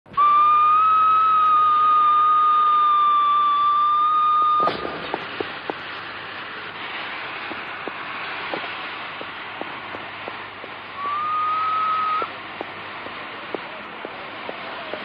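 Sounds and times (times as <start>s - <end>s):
steam locomotive whistle: 0.1s - 5.3s, 10.9s - 12.4s
steam hissing: 0.1s - 15.0s.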